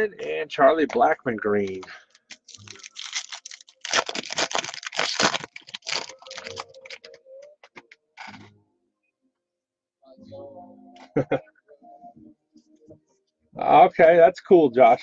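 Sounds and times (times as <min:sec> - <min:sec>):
foil wrapper crinkling and tearing: 0:02.1 - 0:07.2.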